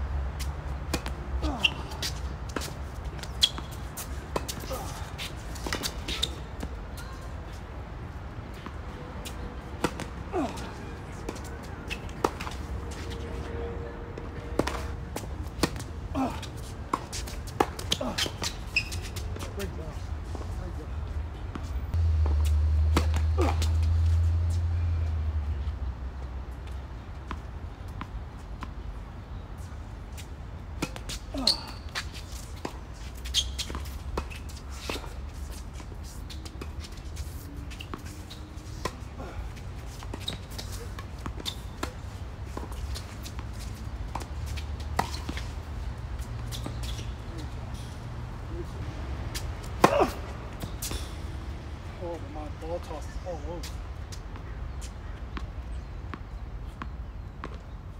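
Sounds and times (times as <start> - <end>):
tennis balls struck and bouncing: 0.9 - 7.2, 8.5 - 13.1, 14.2 - 19.5, 21.5 - 24.9, 30.2 - 48.0, 48.8 - 51.6.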